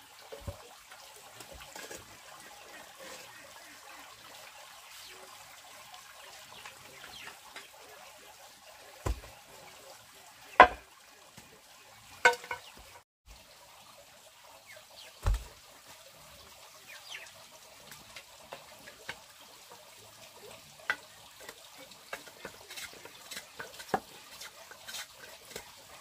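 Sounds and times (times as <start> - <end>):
knocks and thuds: 9.0 - 9.4, 15.2 - 15.5.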